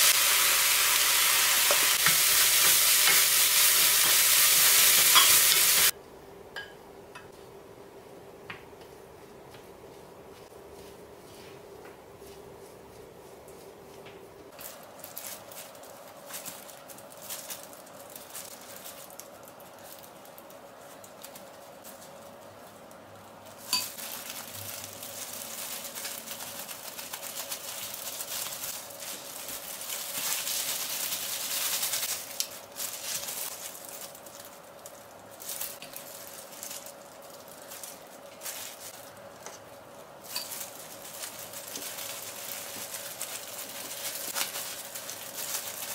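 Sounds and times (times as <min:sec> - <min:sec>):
steady hiss: 0:00.0 - 0:05.9
utensils and dishes clinking: 0:01.6 - 0:05.9, 0:23.6 - 0:24.1, 0:40.2 - 0:40.8.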